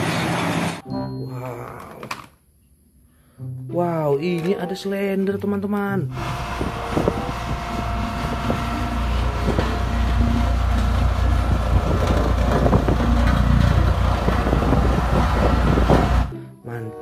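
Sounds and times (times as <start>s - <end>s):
road roller diesel engine: 6.1s - 16.3s.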